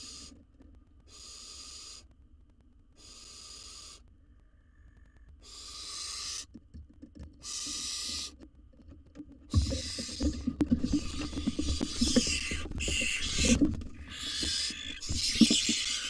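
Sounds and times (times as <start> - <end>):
owl hissing screech calls: 0.0 - 0.4, 1.1 - 2.1, 3.0 - 4.0, 5.4 - 6.5, 7.4 - 8.4, 9.6 - 16.0.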